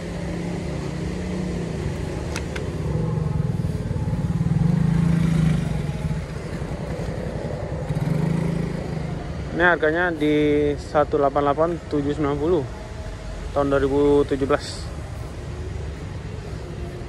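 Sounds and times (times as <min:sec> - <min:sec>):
small motorcycle engine passing: 0:00.4 - 0:09.3.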